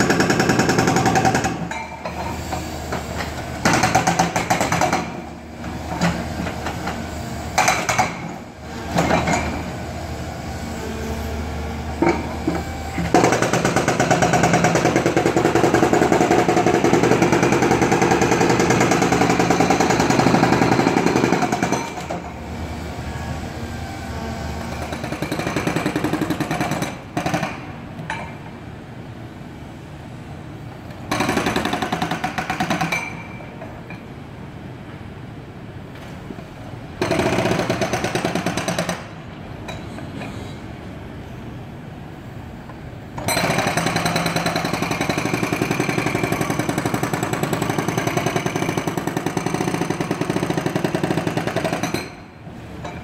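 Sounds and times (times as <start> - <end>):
diesel engine running low: 21.9 - 26.4.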